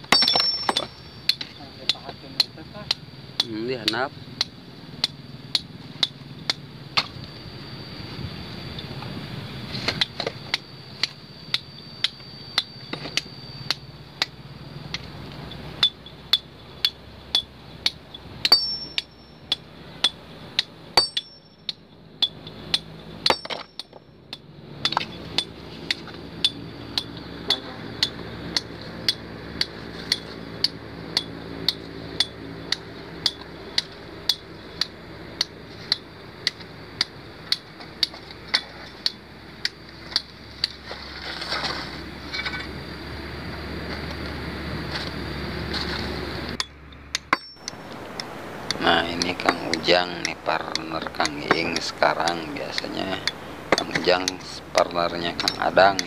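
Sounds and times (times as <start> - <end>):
hammer striking rock: 0.0 - 7.2, 15.8 - 21.5, 22.2 - 32.4, 46.6 - 47.8, 50.7 - 54.5.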